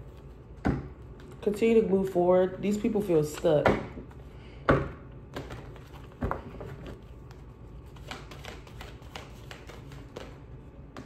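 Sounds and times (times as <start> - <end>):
cards being shuffled: 5.3 - 11.0.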